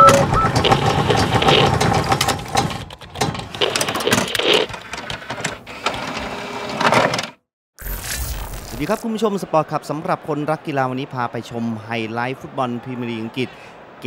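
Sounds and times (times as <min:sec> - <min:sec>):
sharp hit: 0:07.8 - 0:09.0.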